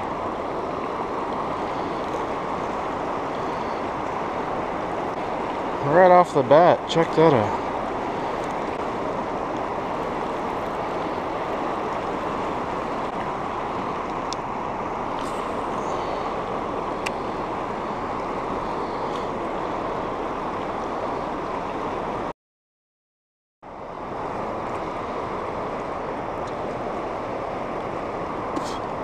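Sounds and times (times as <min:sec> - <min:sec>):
fast river current rushing: 0:00.0 - 0:22.3, 0:23.7 - 0:29.0
faint ticks: 0:17.0 - 0:17.2.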